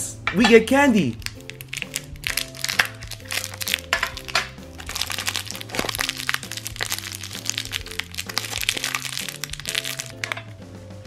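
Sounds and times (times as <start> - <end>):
light background music: 0.0 - 11.0
plastic crinkling: 1.1 - 10.5.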